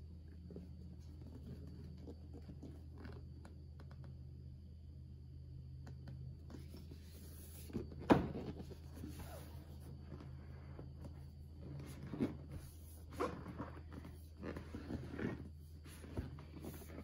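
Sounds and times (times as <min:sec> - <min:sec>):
cardboard box rustling and scraping: 0:06.6 - 0:17.0.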